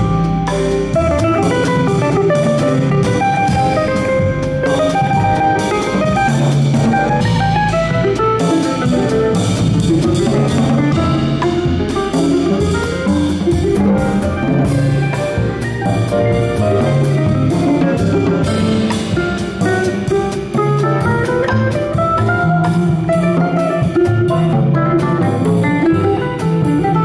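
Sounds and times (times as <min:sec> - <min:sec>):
drum kit with cymbals: 0:00.0 - 0:27.0
piano: 0:00.0 - 0:27.0
upright double bass: 0:00.0 - 0:27.0.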